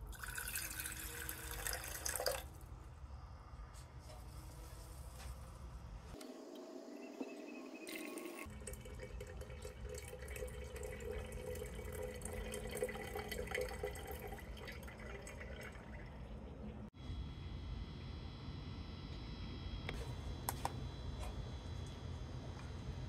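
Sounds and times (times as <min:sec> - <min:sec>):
liquid trickling into a glass jar: 0:00.0 - 0:02.5, 0:07.9 - 0:16.3.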